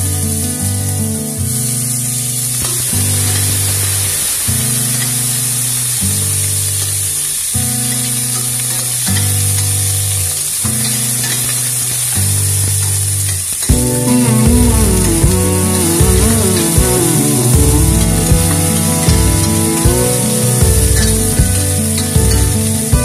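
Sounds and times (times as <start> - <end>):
onions sizzling in hot oil: 0.0 - 22.9
background music: 13.7 - 23.0.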